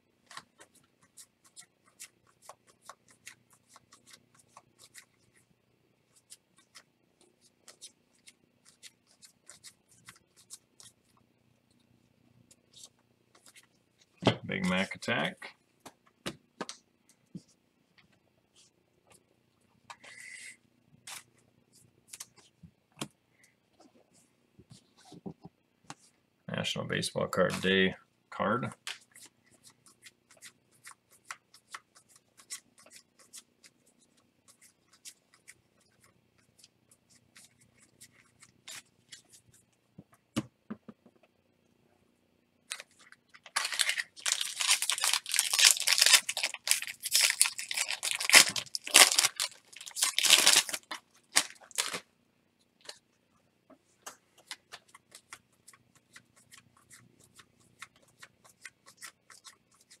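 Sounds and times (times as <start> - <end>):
cards being handled: 42.7 - 52.0
wrapper tearing and crinkling: 42.7 - 52.0.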